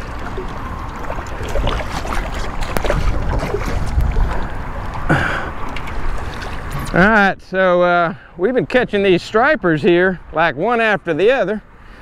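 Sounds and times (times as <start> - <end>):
fish splashing at water surface: 0.0 - 6.9.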